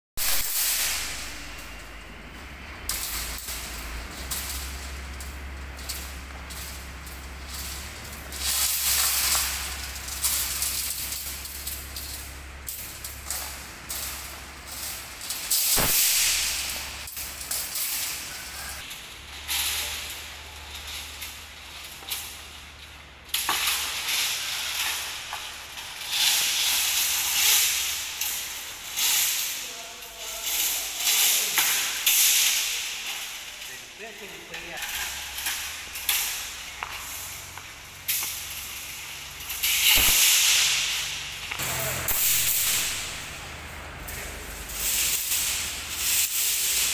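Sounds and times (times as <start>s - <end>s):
steady low hum: 0.2s - 46.9s
steel bars scraping together: 0.2s - 46.9s
sharp metallic clank: 2.9s - 18.8s, 38.1s - 46.9s.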